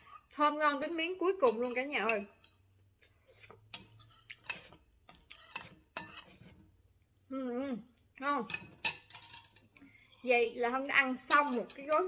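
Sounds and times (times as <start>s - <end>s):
utensils clinking on a dish: 0.0s - 2.5s, 3.6s - 6.5s, 8.5s - 10.2s, 11.2s - 12.0s.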